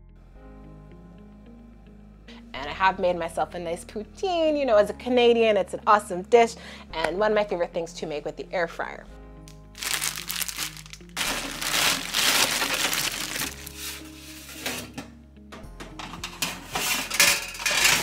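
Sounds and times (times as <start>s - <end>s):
background music: 0.0s - 18.0s
plastic bag crinkling: 9.8s - 14.2s
fries rattling onto metal tray: 16.4s - 18.0s.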